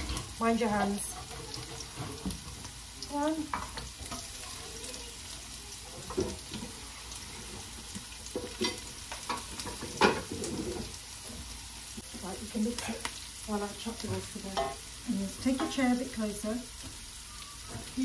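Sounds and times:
onions sizzling in hot oil: 0.0 - 18.0.

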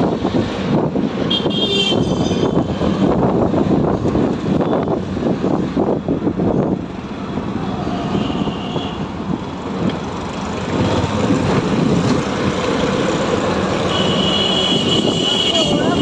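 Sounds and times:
rickshaw engine and road noise: 0.0 - 16.0
street traffic: 0.0 - 16.0.

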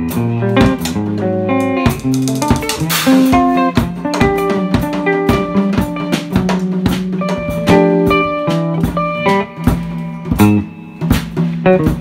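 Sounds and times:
drum and cymbal hits: 0.0 - 12.0
guitar chords: 0.0 - 12.0.

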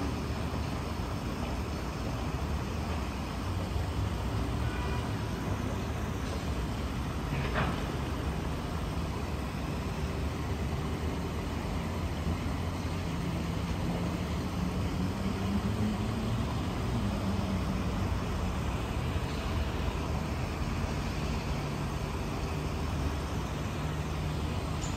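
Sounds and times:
distant road traffic rumble: 0.0 - 24.9
passing vehicle engine hum: 11.1 - 24.6.

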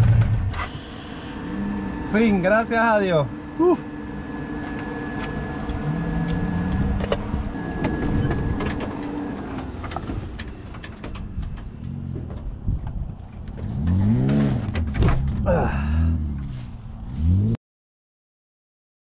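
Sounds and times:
vehicle engine running: 0.0 - 17.6
vehicle knocks and rattles: 6.7 - 15.5.

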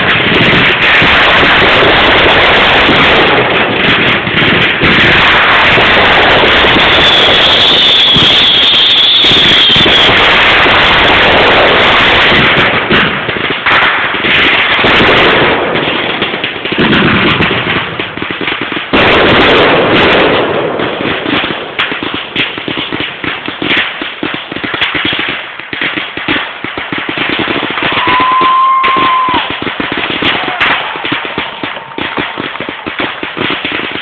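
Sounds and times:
loud blast: 0.0 - 18.1, 18.9 - 21.8, 27.7 - 34.0
fireworks bursting: 0.0 - 34.0
sharp bangs: 26.2 - 34.0.

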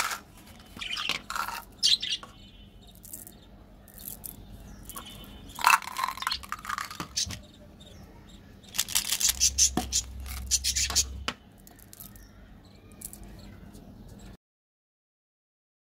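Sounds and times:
candy clattering into plastic jar: 0.0 - 0.3, 5.6 - 7.2, 8.7 - 10.6
candy rattling in tube: 5.6 - 7.2, 8.7 - 10.6.

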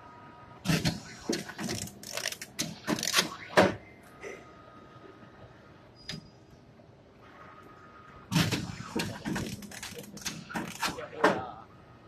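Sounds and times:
faint steady machine whine: 0.0 - 12.0
machine clicks and clacks: 0.7 - 3.7, 8.3 - 11.4.

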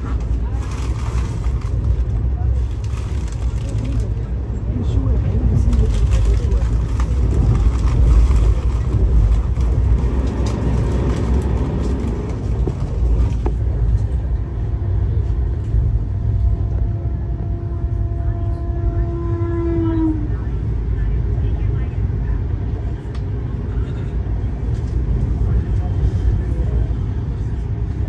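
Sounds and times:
train coach rumble and clatter: 0.0 - 28.0
train horn: 16.6 - 20.5.

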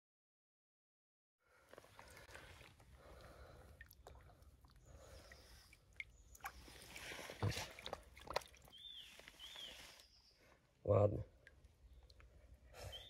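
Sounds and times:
stream water sloshing: 1.7 - 10.0
small sharp splashes: 1.9 - 9.4.

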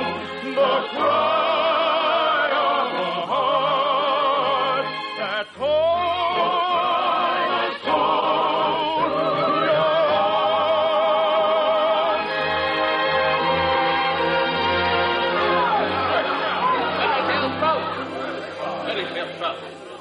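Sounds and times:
operatic singing: 0.0 - 19.6
orchestra playing: 4.3 - 19.9.

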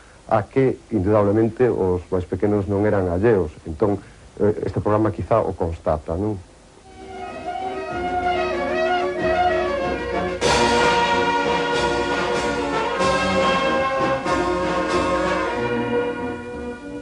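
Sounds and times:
wind band playing: 6.8 - 17.0.

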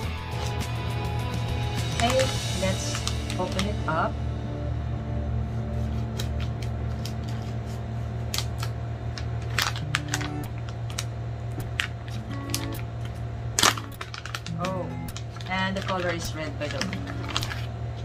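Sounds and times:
background music: 0.0 - 7.5, 13.6 - 17.6
packaging crinkling: 1.9 - 3.8, 5.8 - 17.8
scissors snipping packaging: 2.0 - 3.7, 5.9 - 17.7.

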